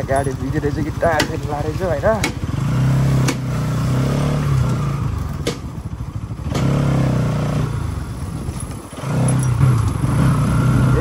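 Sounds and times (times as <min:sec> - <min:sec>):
motorcycle engine under throttle: 0:00.0 - 0:11.0
sharp knocks: 0:01.1 - 0:01.5, 0:02.1 - 0:02.5, 0:03.2 - 0:03.6, 0:05.4 - 0:05.8.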